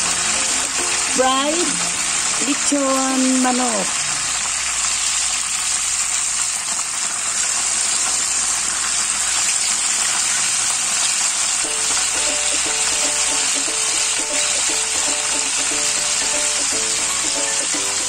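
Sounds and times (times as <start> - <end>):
background music: 0.0 - 3.9, 11.6 - 18.0
oil sizzling in a wok: 0.0 - 18.0.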